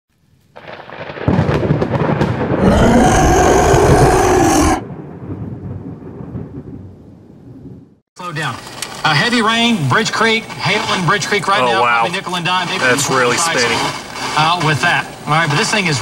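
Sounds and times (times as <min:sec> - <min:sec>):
thunder crash: 0:00.6 - 0:07.0.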